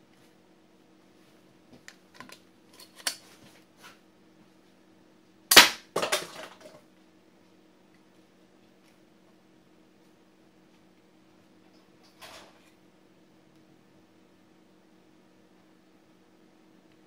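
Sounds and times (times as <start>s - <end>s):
toy gun firing crack: 5.5s - 6.5s.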